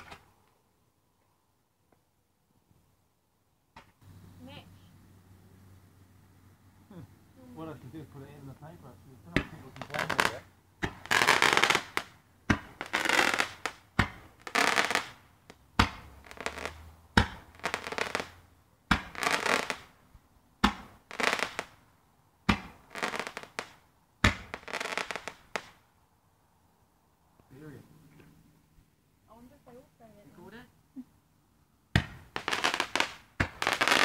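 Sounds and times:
firework bangs: 0:00.0 - 0:00.3, 0:09.3 - 0:20.0, 0:20.6 - 0:21.8, 0:22.4 - 0:25.8, 0:31.9 - 0:34.0
firework crackling hiss: 0:09.3 - 0:20.0, 0:20.7 - 0:21.8, 0:22.5 - 0:25.8, 0:32.0 - 0:34.0.

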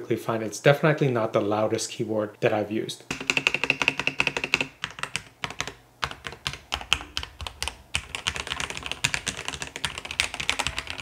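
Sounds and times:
fast typing key clacks: 0:03.1 - 0:11.0.

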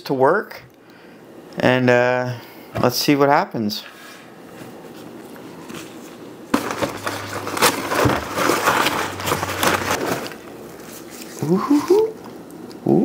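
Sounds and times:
paper crinkling and rustling: 0:04.5 - 0:12.2.

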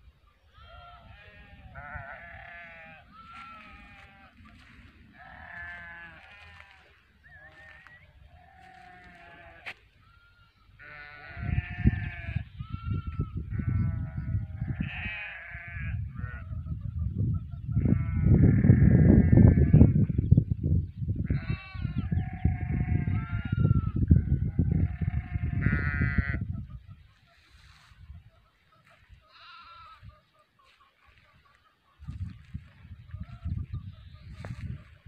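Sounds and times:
livestock bleating: 0:00.5 - 0:16.5, 0:17.8 - 0:20.2, 0:21.2 - 0:26.5, 0:28.9 - 0:30.8
wind rumble on microphone: 0:00.7 - 0:06.8, 0:10.9 - 0:30.2, 0:32.0 - 0:35.0.

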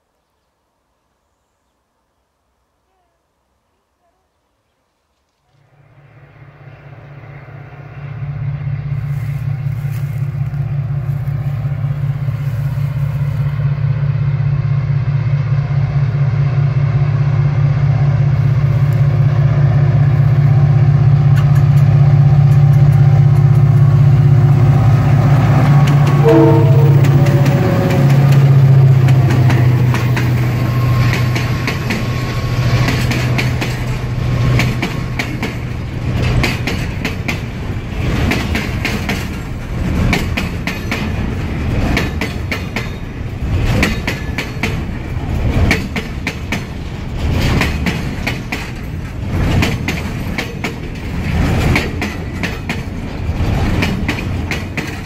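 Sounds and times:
locomotive engine drone: 0:05.7 - 0:55.0
train wheels clattering over rail joints: 0:27.3 - 0:55.0.

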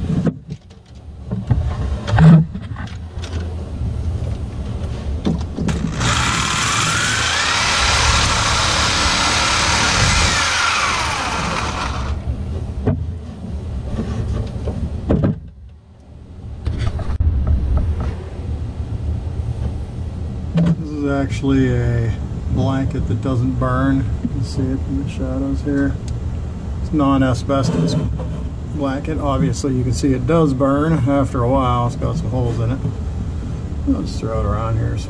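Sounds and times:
reciprocating saw cutting pipe: 0:05.7 - 0:12.3.

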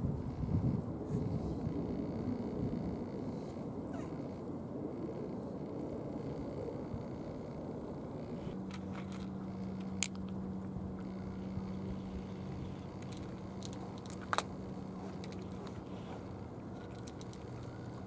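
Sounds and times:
steady low hum: 0:00.0 - 0:18.0
cats crunching dry kibble: 0:08.6 - 0:18.0.

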